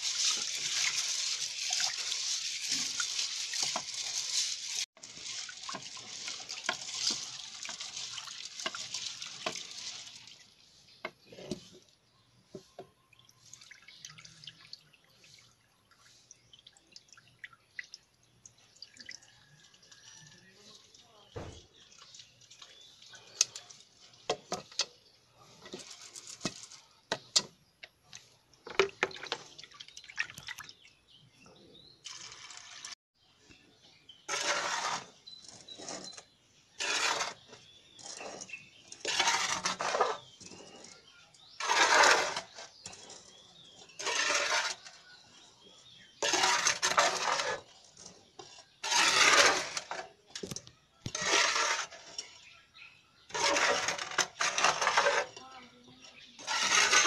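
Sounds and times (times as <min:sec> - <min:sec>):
dry beans rattling in metal pot: 0:00.0 - 0:11.7, 0:34.3 - 0:45.0, 0:46.2 - 0:52.4, 0:53.3 - 0:55.6, 0:56.3 - 0:57.0
hand scraping ash in metal pot: 0:00.0 - 0:12.8, 0:19.5 - 0:29.6, 0:31.8 - 0:57.0.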